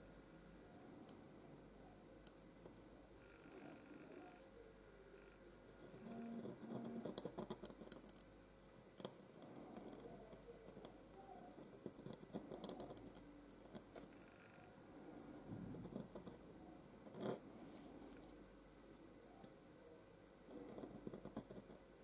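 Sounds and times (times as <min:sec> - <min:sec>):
pen nib scratching on paper: 0:05.8 - 0:08.1, 0:09.0 - 0:14.1, 0:15.7 - 0:16.4, 0:17.0 - 0:17.4, 0:20.5 - 0:21.8.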